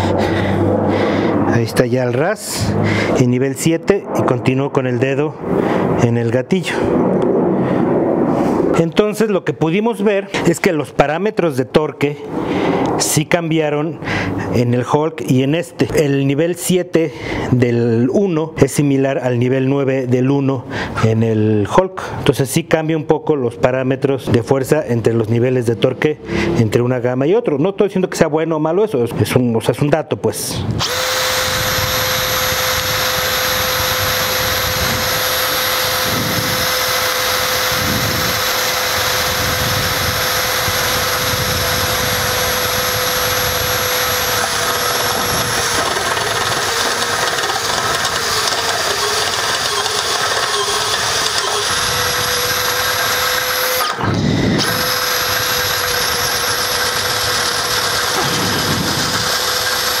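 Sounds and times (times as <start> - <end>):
hammer drill drilling into concrete: 30.8 - 60.0.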